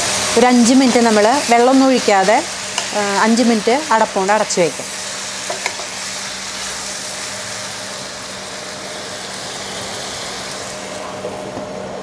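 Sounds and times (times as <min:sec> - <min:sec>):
food sizzling in a pan: 0:00.0 - 0:11.5
steady mechanical hum: 0:00.0 - 0:12.0.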